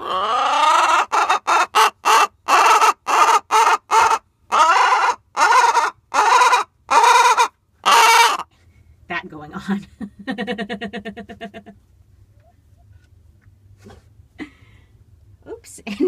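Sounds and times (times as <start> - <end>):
hen squawking: 0.0 - 8.4.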